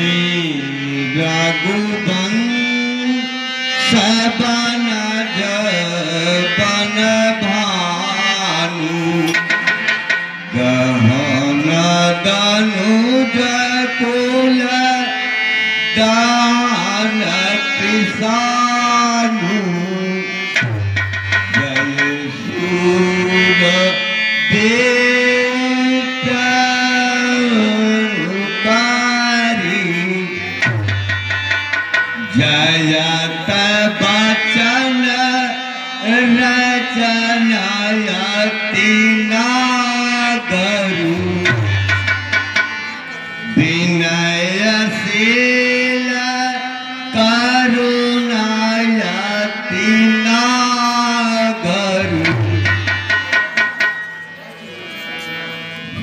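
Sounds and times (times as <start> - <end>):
tabla hand drumming: 9.0 - 12.0, 20.5 - 23.6, 30.3 - 34.3, 41.1 - 43.1, 51.9 - 54.4.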